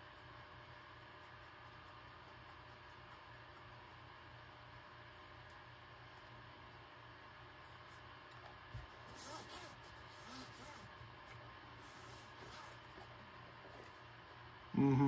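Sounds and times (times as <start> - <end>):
paintbrush rubbing on plastic: 9.0 - 10.9, 11.8 - 12.8.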